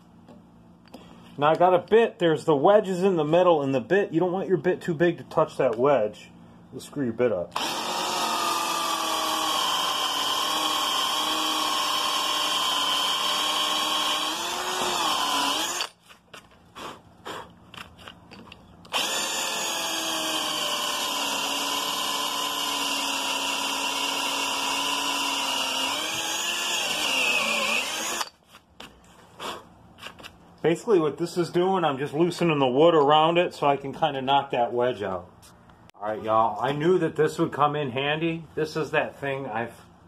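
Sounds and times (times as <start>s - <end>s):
electric drill boring into wood: 7.5s - 16.0s, 18.9s - 28.4s.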